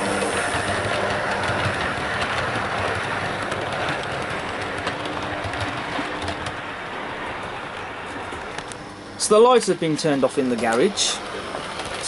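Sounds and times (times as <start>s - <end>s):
model train motor hum: 0.0s - 6.7s, 9.5s - 12.0s
wheels clicking over rail joints: 0.0s - 12.0s.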